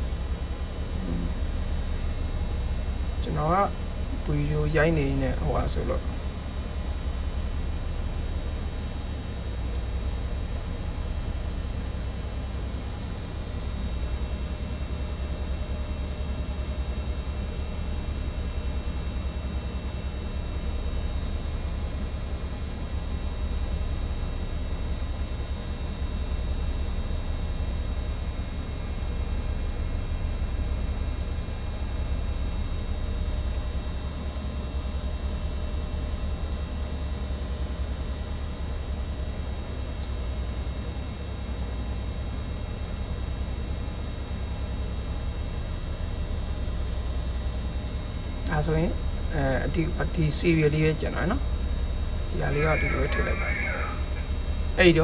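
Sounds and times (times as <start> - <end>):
faint humming tones: 0.0 - 55.0
machinery droning: 0.0 - 55.0
computer mouse clicks: 1.0 - 1.3, 13.0 - 13.3, 28.2 - 28.4, 40.0 - 40.2, 41.6 - 41.9
constant hiss: 52.3 - 55.0.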